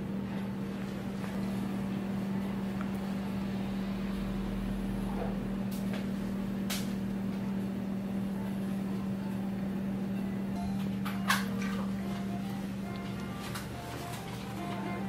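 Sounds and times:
appliance humming: 0.0 - 15.0.

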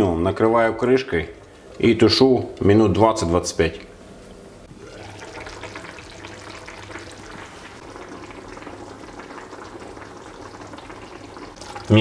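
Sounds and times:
sauce simmering and popping: 4.7 - 12.0.

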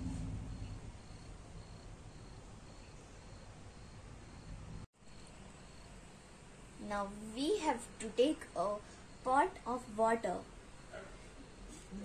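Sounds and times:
cricket chirping: 0.5 - 6.2.

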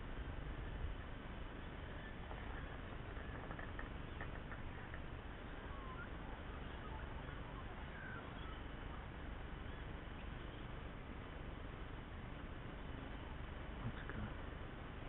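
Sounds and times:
steady outdoor hiss: 0.0 - 15.0
faint bird chirps: 1.5 - 11.0.

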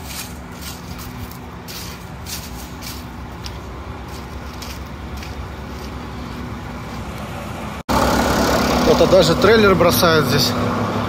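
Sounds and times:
faint scuffs: 0.0 - 7.1
diesel truck engine idling: 0.0 - 11.0.

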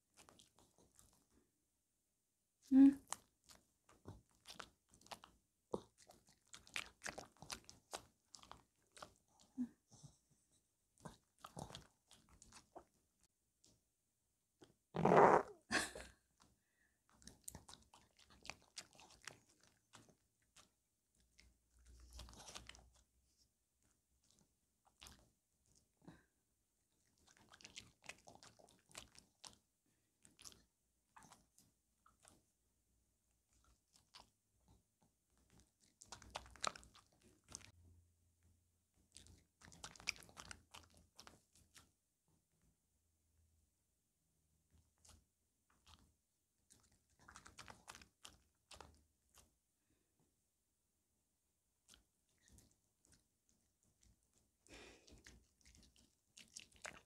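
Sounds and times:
dog chewing and crunching: 0.1 - 1.4, 3.0 - 10.1, 11.0 - 13.0, 17.1 - 23.0, 23.8 - 25.8, 27.0 - 29.6, 30.2 - 32.4, 33.5 - 37.7, 39.0 - 41.9, 44.8 - 49.6, 51.8 - 57.0.

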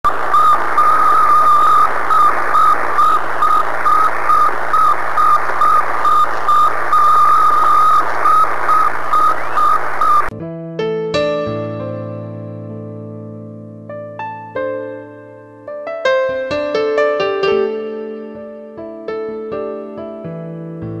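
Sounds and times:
radio static hiss: 0.0 - 10.3
high radio beeps: 0.1 - 10.3.

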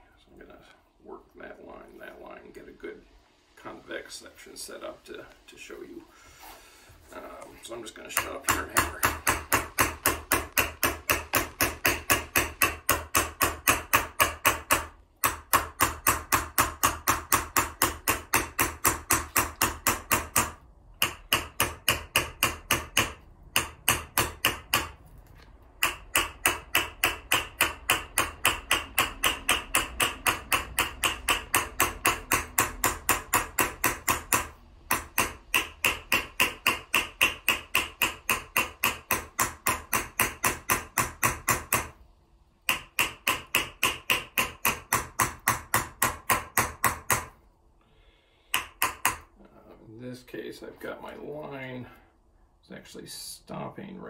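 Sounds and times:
hammer tapping metal vessel: 8.1 - 25.0, 25.8 - 42.0, 42.7 - 47.4, 48.5 - 49.3.

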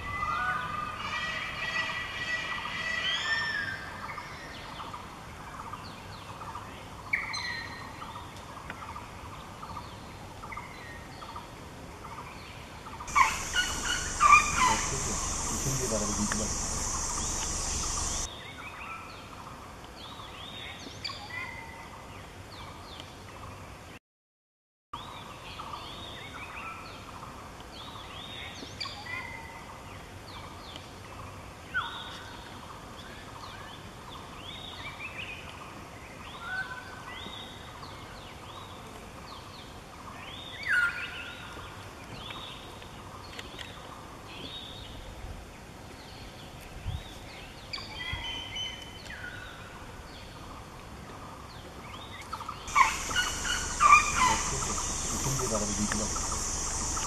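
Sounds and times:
birds calling: 13.0 - 18.3, 51.9 - 57.0
loud sharp bird call: 13.1 - 18.3, 52.7 - 57.0.

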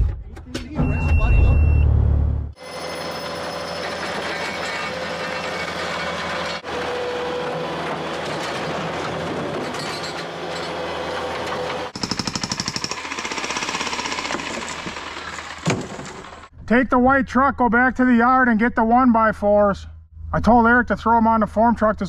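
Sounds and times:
diesel engine running: 2.2 - 16.5
jackhammer breaking concrete: 11.9 - 16.5.

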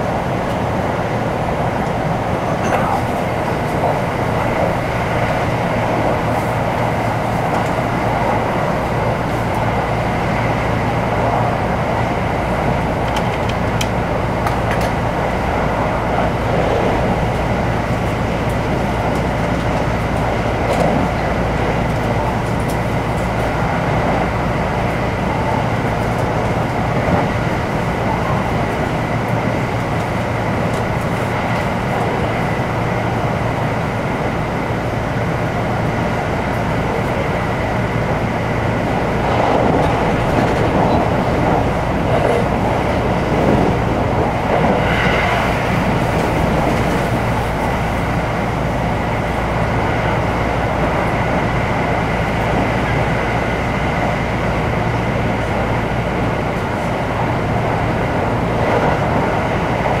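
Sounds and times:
train wheels rumbling on rail: 0.0 - 60.0.

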